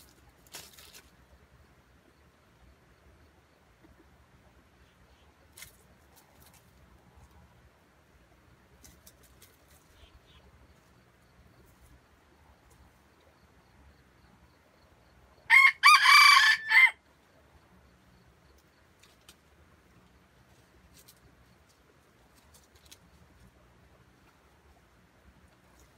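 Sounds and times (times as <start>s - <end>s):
rooster crowing: 15.5s - 17.0s.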